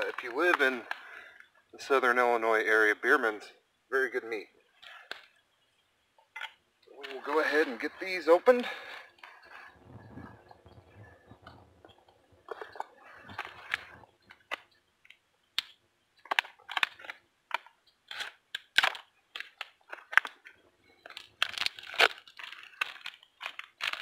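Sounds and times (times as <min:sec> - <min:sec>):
plastic packaging crinkling and tearing: 0:16.2 - 0:24.0.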